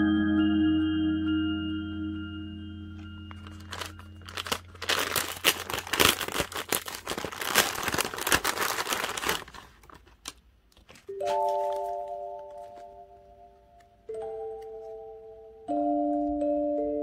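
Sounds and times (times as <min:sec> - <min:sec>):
plastic mailer bag crinkling: 0:03.1 - 0:12.8.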